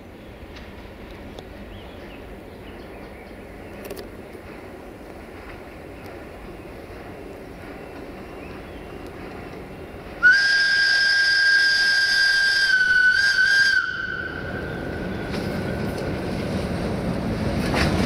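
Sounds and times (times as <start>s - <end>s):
locomotive horn blast: 10.2s - 14.6s.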